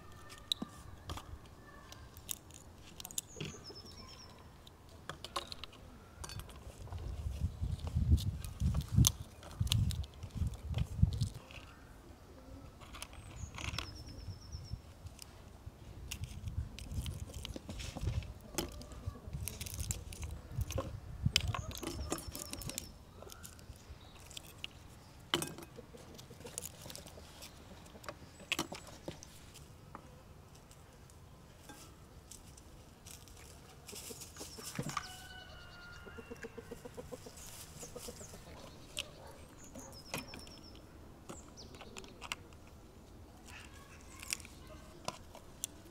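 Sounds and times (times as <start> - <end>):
high bird chirps: 3.1 - 4.5, 34.5 - 42.0
chickens clucking: 25.4 - 29.1, 33.7 - 40.5.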